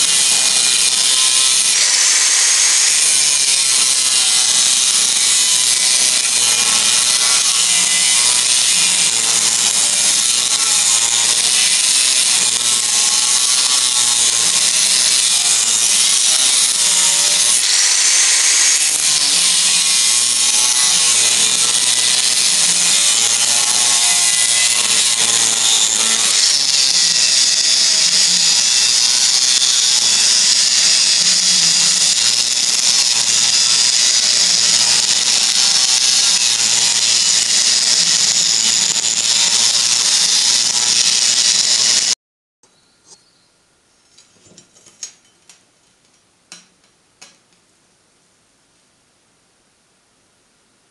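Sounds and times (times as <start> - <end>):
angle grinder cutting steel: 0.0 - 42.2.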